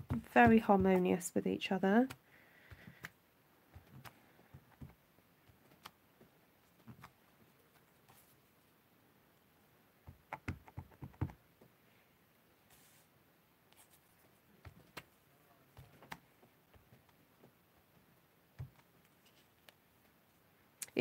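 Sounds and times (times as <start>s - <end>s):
taps and clicks on craft mat: 0.0s - 1.1s, 2.0s - 6.0s, 10.1s - 11.4s.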